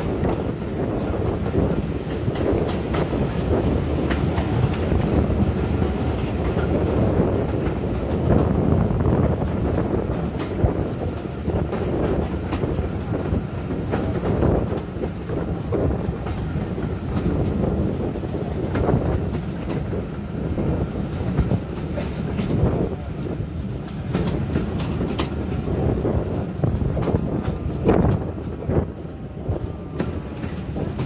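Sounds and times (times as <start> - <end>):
train coach rumbling: 0.0 - 31.0
wheels clattering on track: 0.0 - 31.0.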